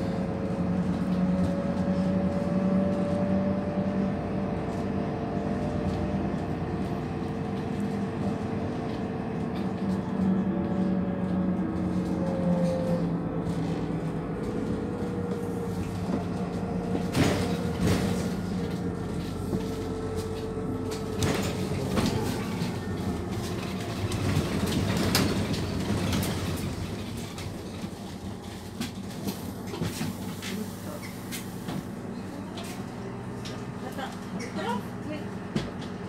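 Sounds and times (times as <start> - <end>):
bus diesel engine drone: 0.0 - 36.0
bus body knocks and rattles: 13.4 - 30.5, 35.4 - 36.0.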